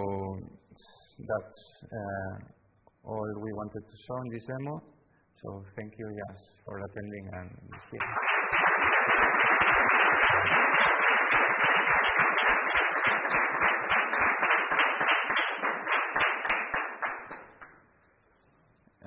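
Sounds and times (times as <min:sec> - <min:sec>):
audience applauding: 0:07.9 - 0:17.7.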